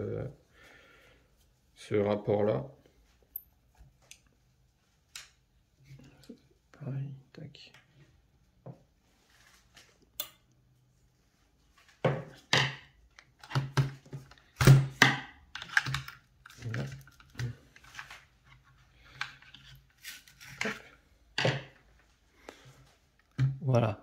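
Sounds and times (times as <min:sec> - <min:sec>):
plastic and metal parts clicking: 0:15.5 - 0:18.1.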